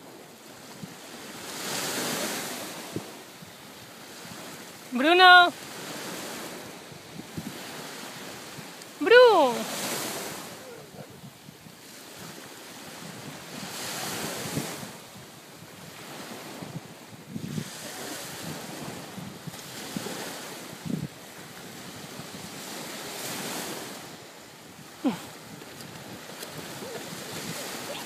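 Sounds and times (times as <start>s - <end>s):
small waves breaking on shore: 0.0s - 28.0s
wind buffeting microphone: 5.7s - 8.8s, 9.7s - 28.0s.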